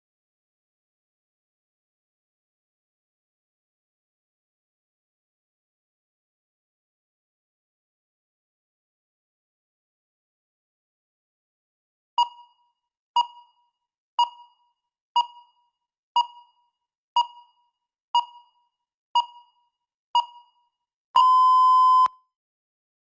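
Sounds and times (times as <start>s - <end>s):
countdown timer beeps: 12.2s - 12.6s, 13.2s - 13.6s, 14.2s - 14.6s, 15.2s - 15.6s, 16.2s - 16.6s, 17.2s - 18.6s, 19.2s - 19.6s, 20.2s - 20.6s, 21.2s - 22.2s.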